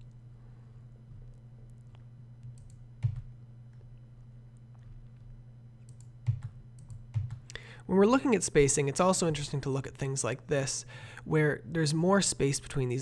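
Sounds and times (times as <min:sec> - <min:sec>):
low hum: 0:00.0 - 0:12.1
keyboard and mouse clicks: 0:01.7 - 0:03.3, 0:05.9 - 0:07.6.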